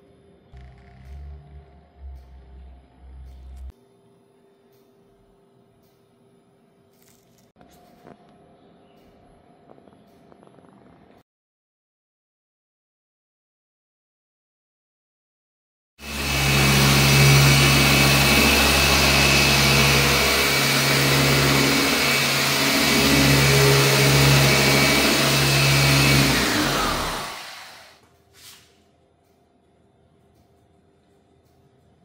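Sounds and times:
machine polisher whining: 0:16.0 - 0:28.0.

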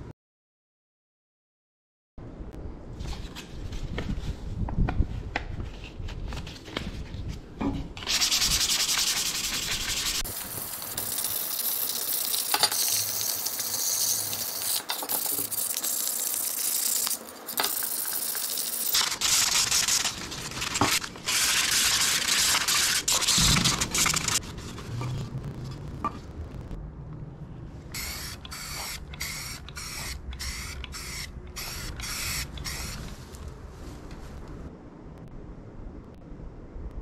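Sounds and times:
sandpaper rubbing on metal: 0:08.0 - 0:11.8, 0:15.4 - 0:24.5.

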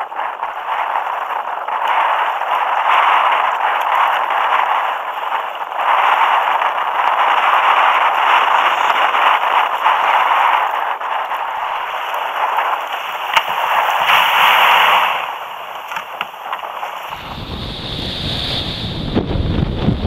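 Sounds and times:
surf rushing and breaking: 0:00.0 - 0:20.0
wind buffeting microphone: 0:00.0 - 0:20.0
waves on beach: 0:07.3 - 0:19.0.

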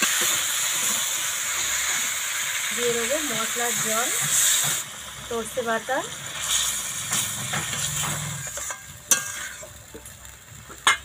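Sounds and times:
curry sizzling in a pan: 0:00.0 - 0:11.0
metal spatula stirring: 0:06.4 - 0:10.2.

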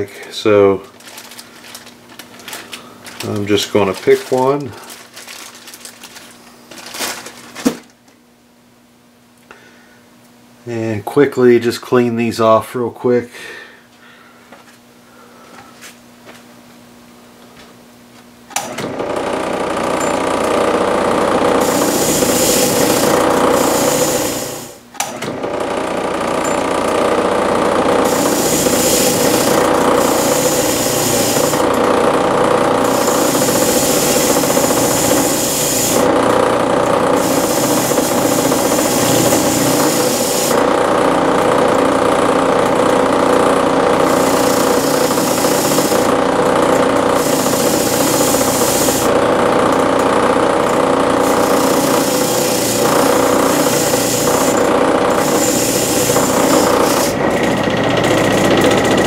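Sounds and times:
electric power tool running: 0:00.9 - 0:07.8, 0:18.5 - 0:59.0
harsh hiss: 0:21.6 - 0:24.7, 0:28.1 - 0:31.7, 0:32.8 - 0:36.1, 0:37.2 - 0:40.6, 0:47.2 - 0:49.1, 0:51.3 - 0:54.6, 0:55.2 - 0:57.1.

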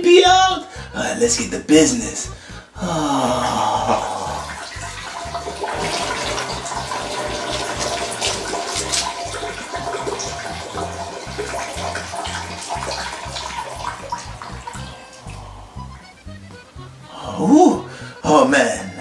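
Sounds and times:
urine splashing into toilet water: 0:03.9 - 0:15.4.

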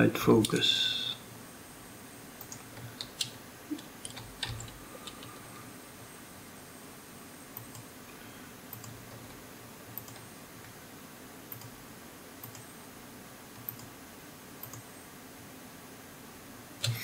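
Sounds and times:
low background hiss and hum: 0:00.0 - 0:17.0
computer mouse clicks: 0:02.4 - 0:05.4, 0:07.6 - 0:07.9, 0:08.7 - 0:09.4, 0:10.0 - 0:10.3, 0:11.5 - 0:11.8, 0:12.4 - 0:12.7, 0:13.6 - 0:13.9, 0:14.6 - 0:14.9.

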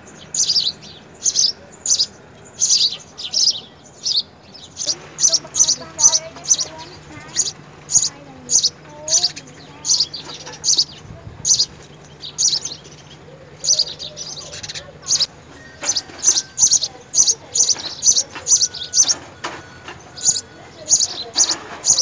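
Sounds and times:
sparrows chirping: 0:00.0 - 0:22.0.

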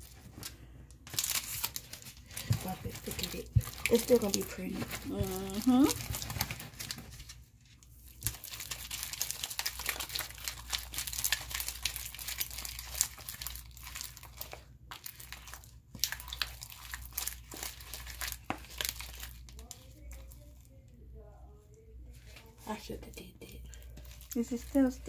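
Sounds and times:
sticky slime crackling and popping: 0:01.1 - 0:07.0, 0:08.0 - 0:20.8.

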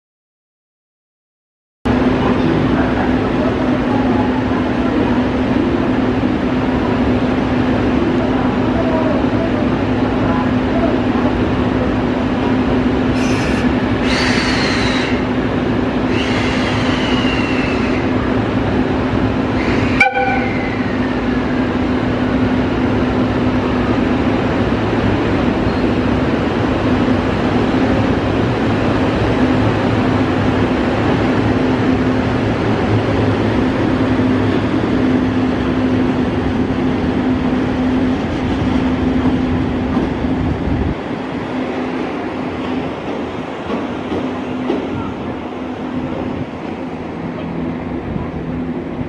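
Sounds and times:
locomotive running hum: 0:01.9 - 0:49.0
locomotive horn blasts: 0:19.6 - 0:20.7.

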